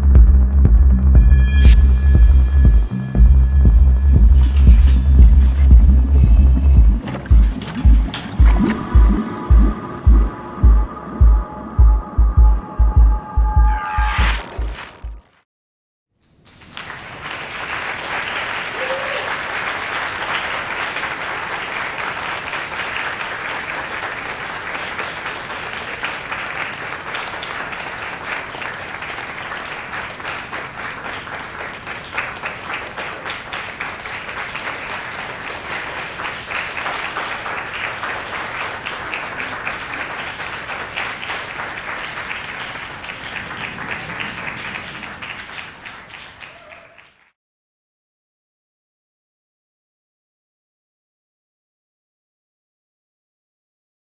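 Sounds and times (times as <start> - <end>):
crowd applauding: 16.3 - 47.4.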